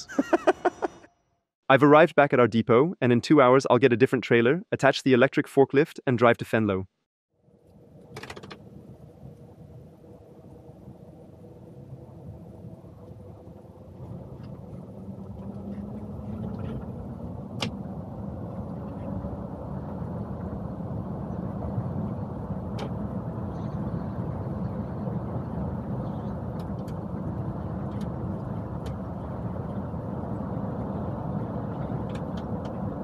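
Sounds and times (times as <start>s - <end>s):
road and tyre noise: 7.4s - 33.0s.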